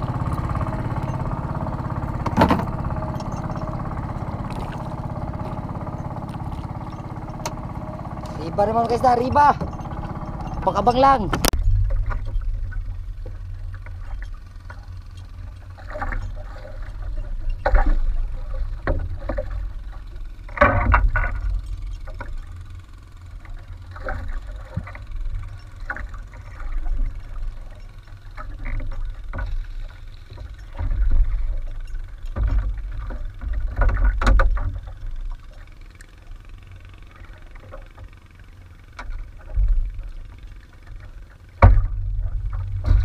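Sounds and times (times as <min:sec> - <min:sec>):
low wind rumble: 0:00.0 - 0:22.7
water splashing against boat hull: 0:00.0 - 0:43.0.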